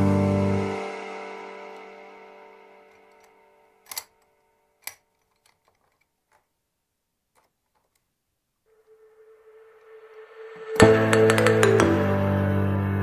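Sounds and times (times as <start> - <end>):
background music: 0.0 - 5.0, 8.7 - 13.0
hand tool clicks: 3.9 - 4.2.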